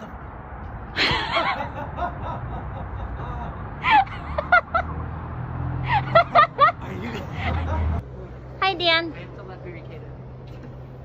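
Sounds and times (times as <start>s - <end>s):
person laughing: 1.0s - 5.0s.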